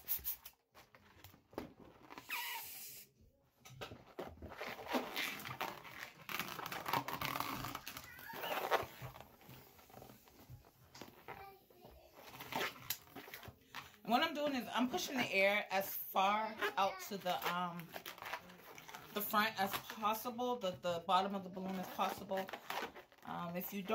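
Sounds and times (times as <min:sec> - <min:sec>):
balloons squeaking and rubbing: 0:00.0 - 0:03.1, 0:04.1 - 0:13.6, 0:16.2 - 0:19.8, 0:21.6 - 0:23.9
balloon sliding squeals: 0:02.2 - 0:03.1, 0:04.6 - 0:09.8.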